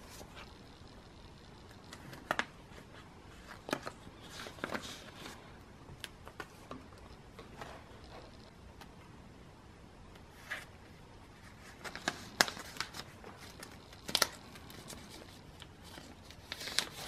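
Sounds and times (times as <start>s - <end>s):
plastic rustle: 11.4s - 17.0s.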